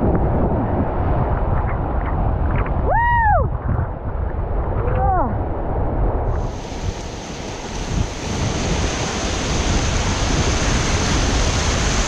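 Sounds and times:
wind buffeting microphone: 0.0 - 12.0
water rushing over rocks: 6.3 - 12.0.

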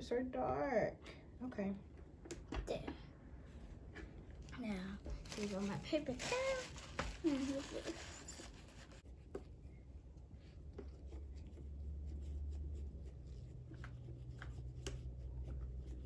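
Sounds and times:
low steady hum: 0.0 - 16.0
paper towel rubbing on plastic: 5.2 - 9.2, 10.9 - 16.0.

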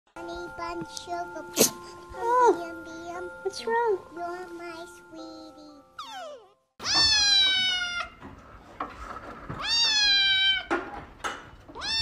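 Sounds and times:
kitten meowing: 6.0 - 8.2, 9.6 - 10.7, 11.8 - 12.0.

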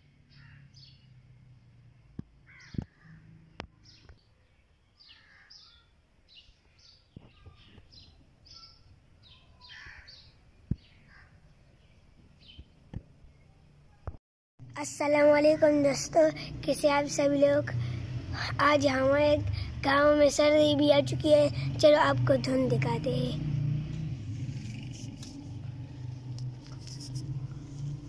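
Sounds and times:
birds chirping: 2.5 - 13.5.

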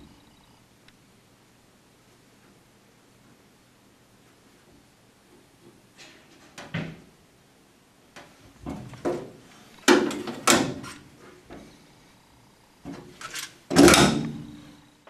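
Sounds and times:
metal bracket scraping and knocking: 12.9 - 13.6
metal clatters: 12.9 - 14.3.

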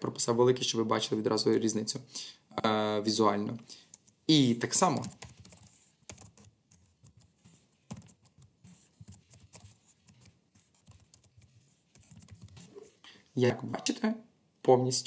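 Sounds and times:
typing on a keyboard: 4.9 - 7.3, 7.9 - 12.7.

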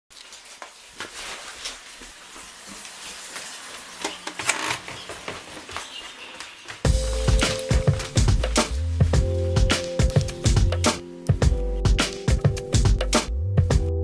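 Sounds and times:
footsteps on wooden stairs: 4.8 - 10.8.

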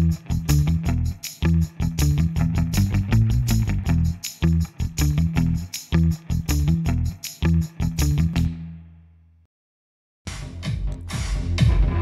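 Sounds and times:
electronic dance music: 10.3 - 12.0.

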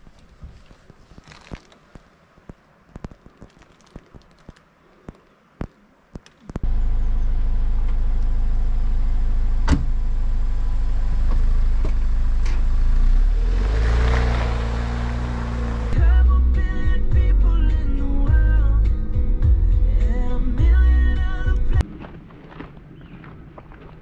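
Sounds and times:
tyres crunching on gravel: 0.0 - 6.6, 21.8 - 24.0
car engine running: 6.6 - 16.0.

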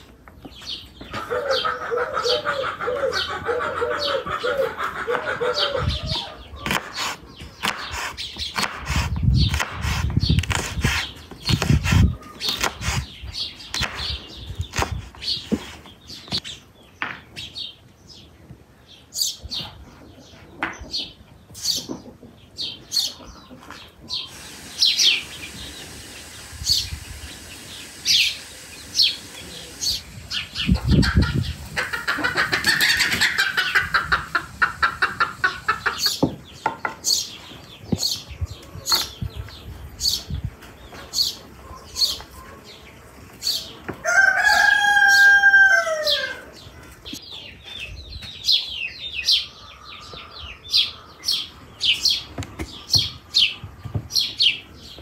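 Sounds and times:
birds chirping: 0.0 - 55.0
rooster crowing: 44.0 - 46.5.

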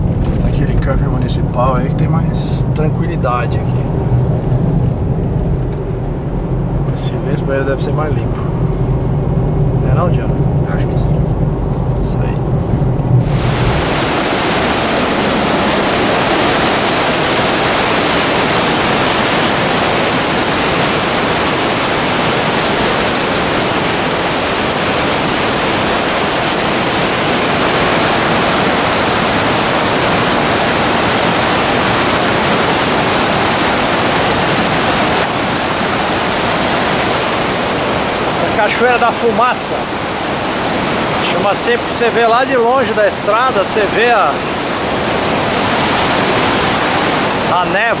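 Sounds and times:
waterfall rushing: 13.2 - 48.0.

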